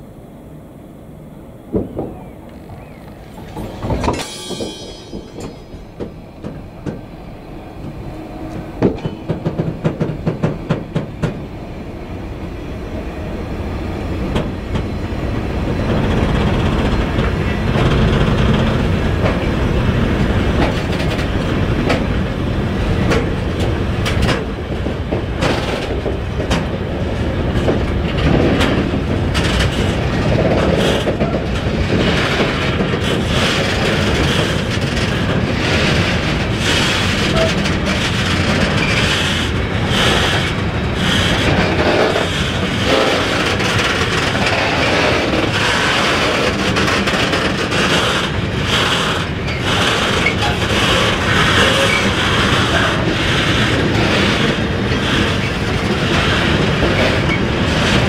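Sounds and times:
freight train rumbling: 0.0s - 58.0s
wheel clacks over rail joints: 7.8s - 11.4s, 23.0s - 58.0s.

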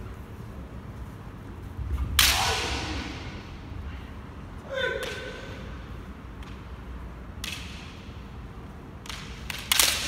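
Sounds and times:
sharp knocks echoing in hall: 1.9s - 3.8s.

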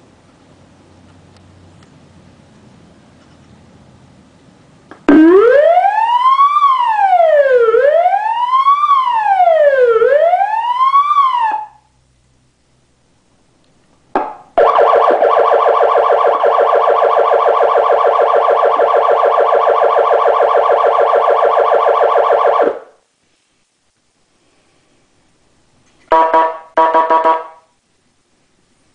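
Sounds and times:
siren yelp warble: 5.1s - 11.8s, 14.6s - 22.9s, 26.1s - 27.6s
siren wail tone: 5.1s - 11.9s, 14.6s - 22.9s, 26.1s - 27.6s.

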